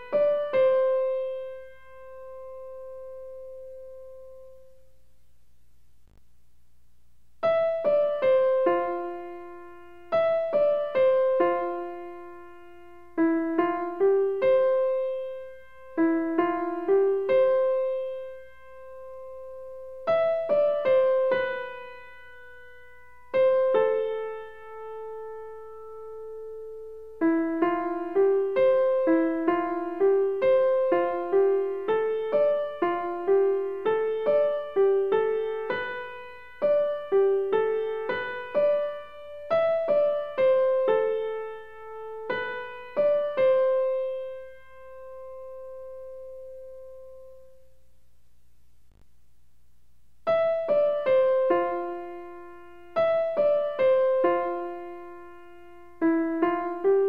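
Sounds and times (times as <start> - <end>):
gentle piano melody: 0.0 - 5.0, 7.4 - 47.8, 50.3 - 57.0.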